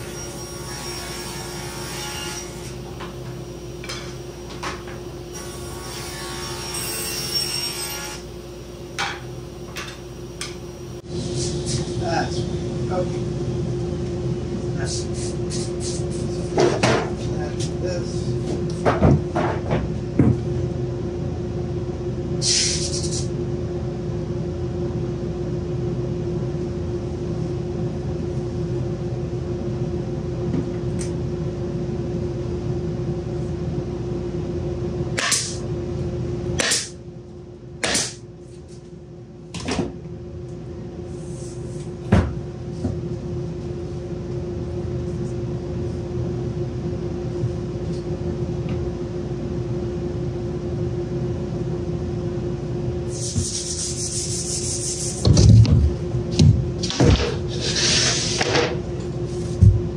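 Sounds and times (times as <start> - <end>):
machine hum: 0.0 - 22.4, 23.4 - 59.9.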